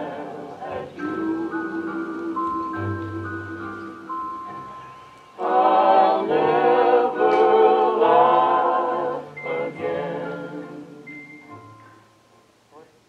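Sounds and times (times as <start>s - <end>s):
person singing with vibrato: 0.0s - 4.4s, 5.3s - 11.6s
sustained mallet percussion tones: 0.0s - 8.1s.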